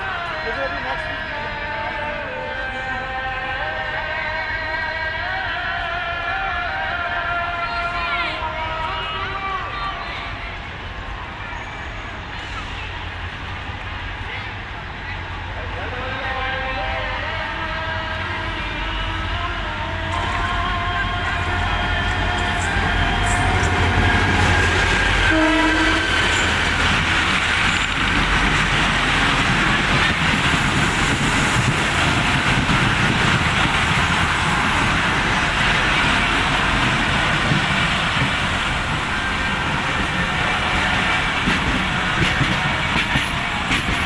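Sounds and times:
diesel locomotive engine rumbling: 0:00.0 - 0:44.0
train wheels on rails: 0:08.6 - 0:44.0
train horn: 0:20.1 - 0:26.6.

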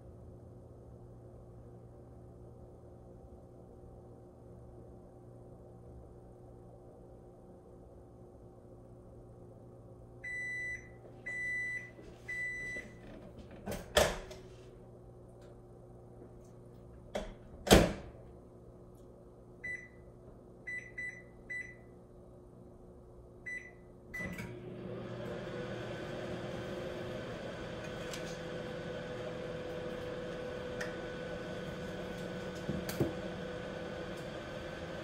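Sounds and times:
appliance beeps: 0:10.2 - 0:13.0, 0:19.6 - 0:22.0, 0:23.4 - 0:24.8
steady running hum: 0:24.5 - 0:35.0.

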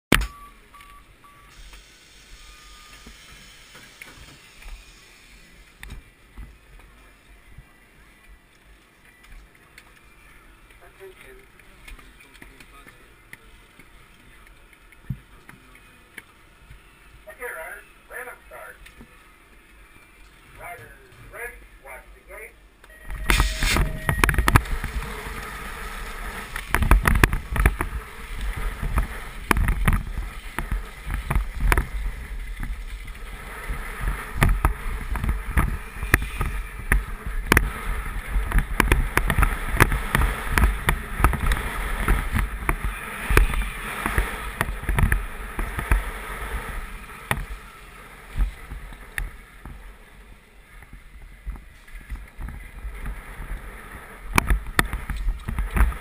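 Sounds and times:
bike tyre roar: 0:23.0 - 0:56.0
wind buffeting microphone: 0:23.2 - 0:50.0
bike clicks and knocks: 0:26.4 - 0:33.2, 0:34.0 - 0:46.1, 0:54.3 - 0:56.0.

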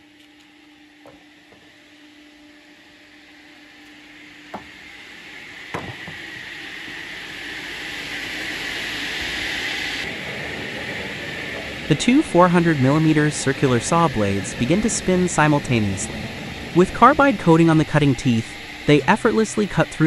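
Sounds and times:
sawmill machinery humming: 0:00.0 - 0:20.0
sharp knocks: 0:04.5 - 0:04.7, 0:05.7 - 0:06.4.

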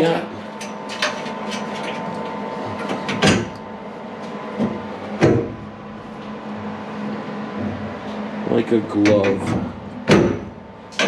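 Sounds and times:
sharp metal clunks: 0:09.0 - 0:11.0.

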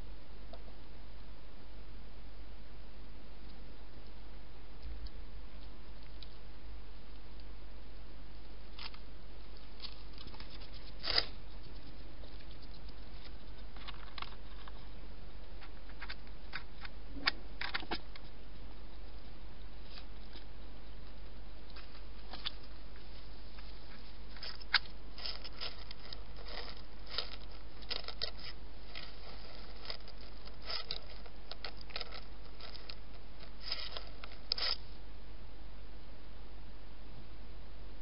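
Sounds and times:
steady low hum: 0:00.0 - 0:38.0
hedgehog crunching food: 0:08.7 - 0:34.9.

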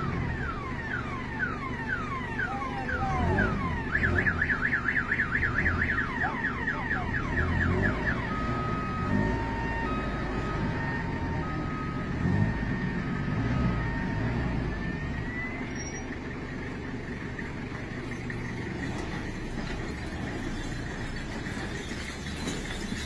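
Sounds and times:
electronic siren cycling tones: 0:00.0 - 0:16.2
low engine rumble: 0:00.0 - 0:23.0.

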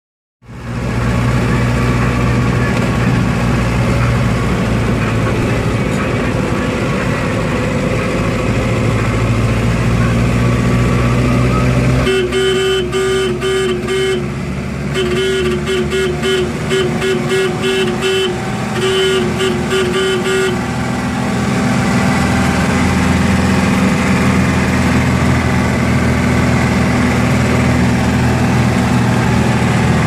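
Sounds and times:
car engine and road noise: 0:00.4 - 0:30.0
car horn toots: 0:11.5 - 0:20.7.

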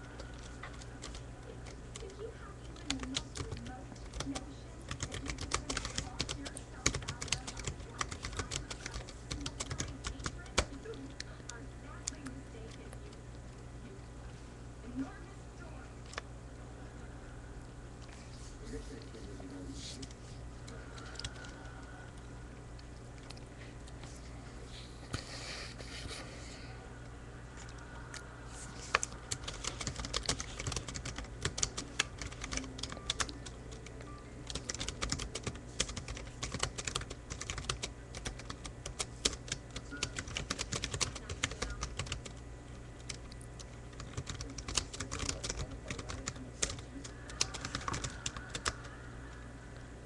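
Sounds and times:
keyboard typing: 0:00.0 - 0:13.2, 0:20.0 - 0:22.2, 0:28.8 - 0:42.4, 0:43.0 - 0:49.0
low steady hum: 0:00.0 - 0:50.0.

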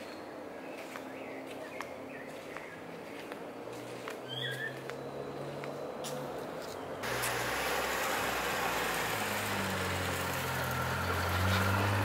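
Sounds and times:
car engine hum driving past: 0:07.0 - 0:12.0.

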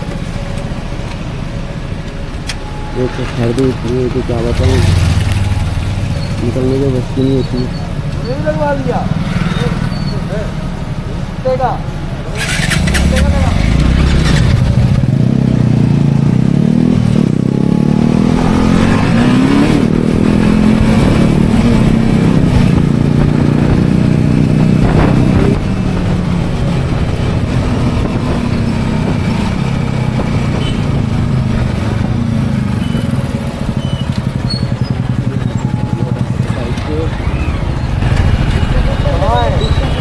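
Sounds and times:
motorcycle engine running: 0:03.5 - 0:11.1, 0:12.1 - 0:40.0.

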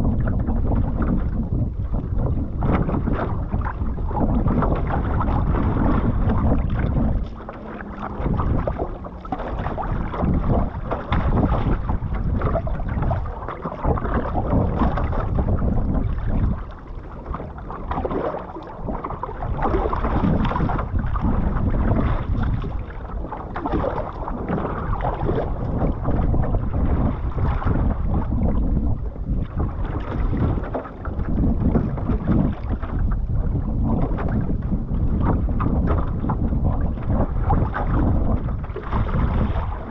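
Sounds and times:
water sloshing and splashing: 0:00.0 - 0:39.9
wind buffeting microphone: 0:00.0 - 0:39.9.

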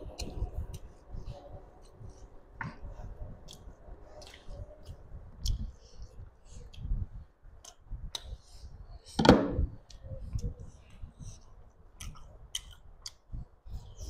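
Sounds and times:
fingers mixing rice on plate: 0:00.0 - 0:06.9
soft squelches: 0:00.0 - 0:14.0.

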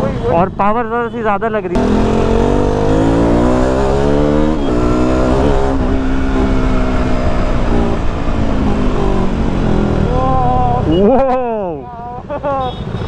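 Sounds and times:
motorcycle engine revving: 0:01.7 - 0:10.9.

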